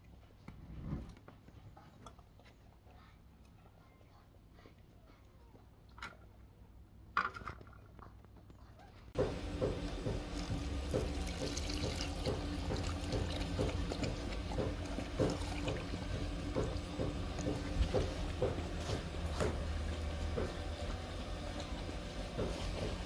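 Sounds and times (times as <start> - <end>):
dog lapping milk: 9.8 - 20.6.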